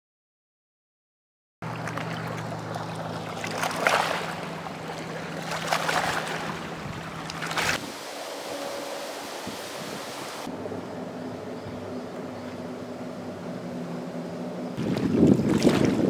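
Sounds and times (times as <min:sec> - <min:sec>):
low steady hum: 0:01.6 - 0:16.0
steady rush of noise: 0:06.6 - 0:15.0.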